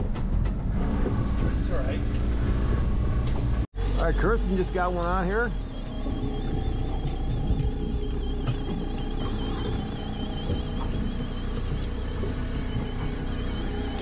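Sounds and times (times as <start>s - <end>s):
boat motor rumbling: 0.0s - 14.0s
faint wavering high whine: 3.8s - 14.0s.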